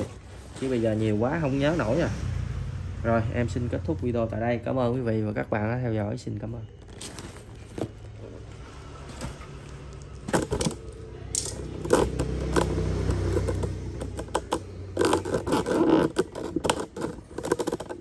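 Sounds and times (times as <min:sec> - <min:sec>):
cardboard boxes scraping: 0:00.0 - 0:01.8, 0:06.9 - 0:10.8, 0:11.8 - 0:18.0.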